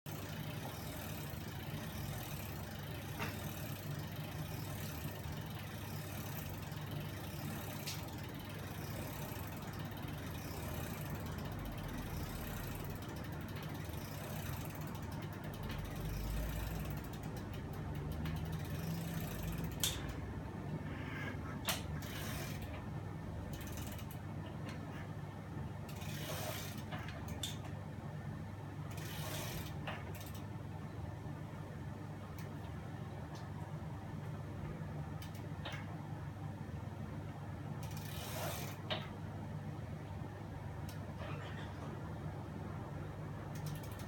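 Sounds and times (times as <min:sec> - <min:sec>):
ratchet clicking: 0:00.1 - 0:20.3, 0:21.7 - 0:22.8, 0:23.4 - 0:24.2, 0:25.8 - 0:27.7, 0:28.9 - 0:30.5, 0:35.2 - 0:35.9, 0:37.8 - 0:39.0, 0:43.5 - 0:44.0.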